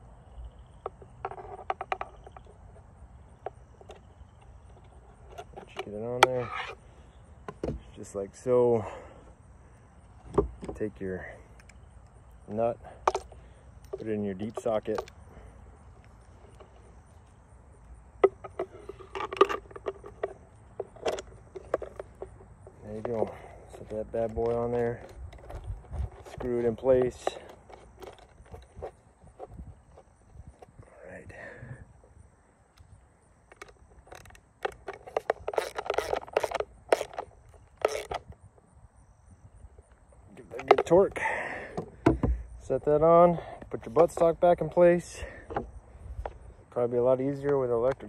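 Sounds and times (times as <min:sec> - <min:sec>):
faint outdoor hiss: 0:00.0 - 0:48.0
shotgun parts clicking and knocking: 0:00.7 - 0:06.7, 0:10.2 - 0:30.8, 0:32.7 - 0:38.4, 0:39.8 - 0:46.4, 0:47.2 - 0:48.0
ratchet clicking and scraping: 0:33.5 - 0:38.4.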